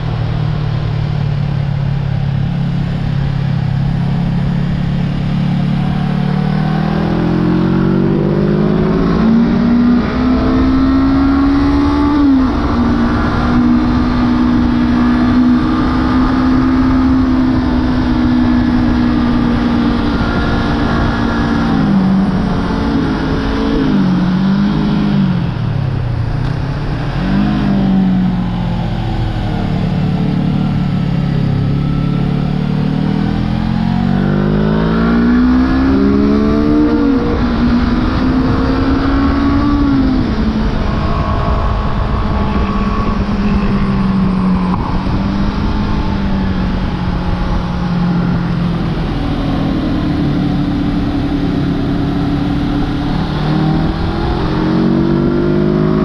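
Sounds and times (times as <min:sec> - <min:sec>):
motorcycle engine: 0:00.0 - 0:56.0
wind rushing: 0:34.5 - 0:56.0.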